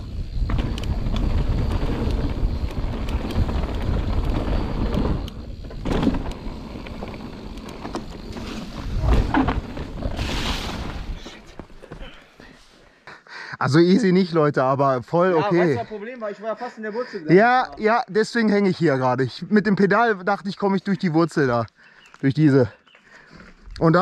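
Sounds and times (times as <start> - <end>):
wind and tyre rumble: 0.0 - 11.8
bike rattling over roots: 0.0 - 12.0.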